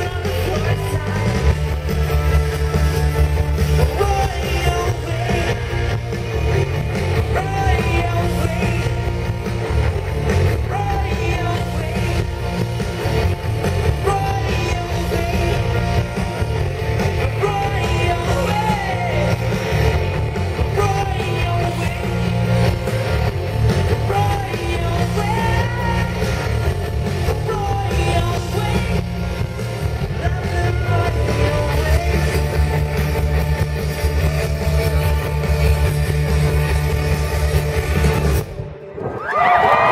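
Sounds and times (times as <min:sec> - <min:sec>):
bass guitar: 0:00.0 - 0:39.9
drums: 0:00.0 - 0:39.9
electric guitars: 0:00.0 - 0:39.9
person singing: 0:03.8 - 0:05.8, 0:07.2 - 0:09.1, 0:10.6 - 0:12.6, 0:13.8 - 0:16.1, 0:17.2 - 0:19.5, 0:20.6 - 0:22.4, 0:23.9 - 0:26.4, 0:27.2 - 0:29.4, 0:30.0 - 0:32.7.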